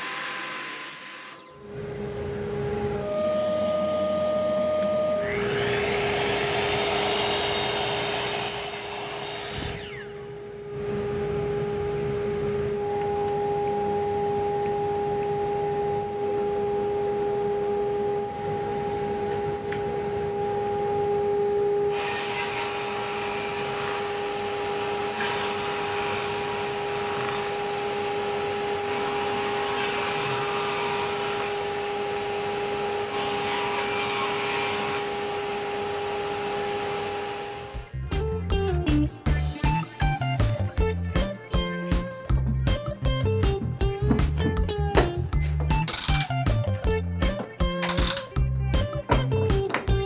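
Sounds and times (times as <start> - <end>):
saw blade cutting wooden board: 0.0 - 1.6, 5.2 - 10.2, 21.9 - 37.7
table saw whining: 0.0 - 38.0.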